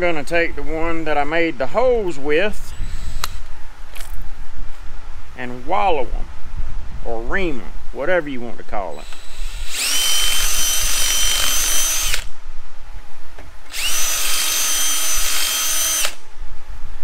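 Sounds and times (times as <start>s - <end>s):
cordless drill whining: 2.7s - 3.5s, 9.0s - 12.3s, 13.7s - 16.2s.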